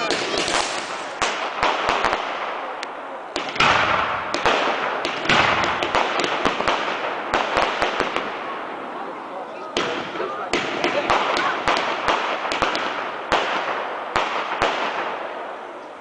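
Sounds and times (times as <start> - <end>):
firework hissing crackle: 0.0 - 2.4
firework bangs: 0.0 - 15.8.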